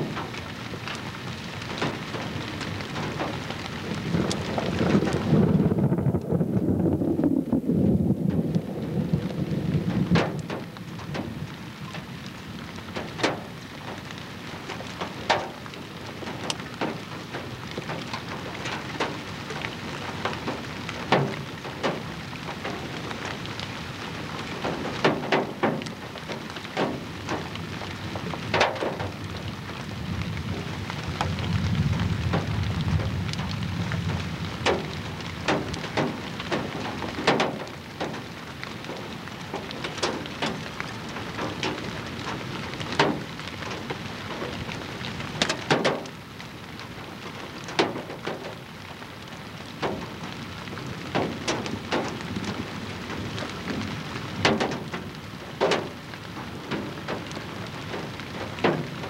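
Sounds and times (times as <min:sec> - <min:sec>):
wind buffeting microphone: 0:00.0 - 0:46.1
crackling pops: 0:01.6 - 0:07.6.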